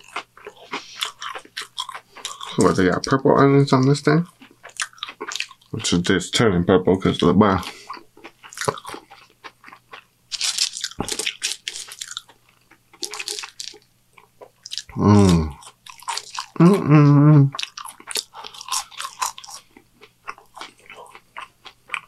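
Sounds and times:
chewing and crunching food: 0:00.0 - 0:06.4, 0:07.0 - 0:16.8, 0:17.5 - 0:22.0
person humming mmm: 0:14.9 - 0:15.6, 0:16.6 - 0:17.6.

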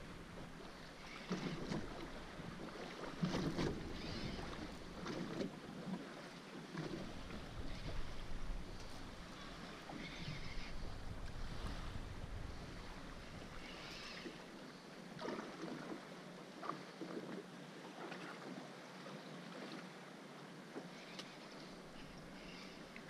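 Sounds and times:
water lapping against boat hull: 0:00.0 - 0:23.0
wind buffeting microphone: 0:07.0 - 0:13.9.

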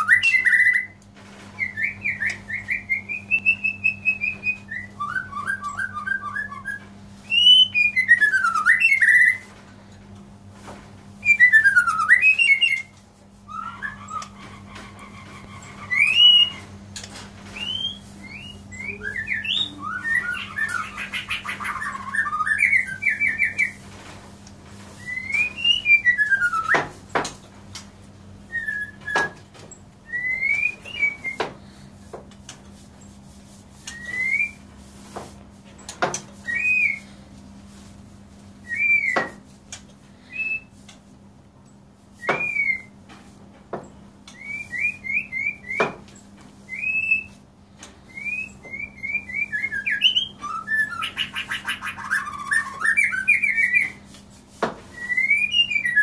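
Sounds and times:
bird singing whistled phrases: 0:00.0 - 0:01.0, 0:01.6 - 0:09.4, 0:11.2 - 0:12.9, 0:15.8 - 0:16.6, 0:17.6 - 0:23.8, 0:25.0 - 0:26.8, 0:28.5 - 0:29.4, 0:30.0 - 0:31.5, 0:33.9 - 0:34.6, 0:36.4 - 0:37.1, 0:38.6 - 0:39.4, 0:40.2 - 0:40.7, 0:42.2 - 0:43.0, 0:44.3 - 0:45.9, 0:46.7 - 0:47.4, 0:48.1 - 0:54.0, 0:54.9 - 0:56.0.

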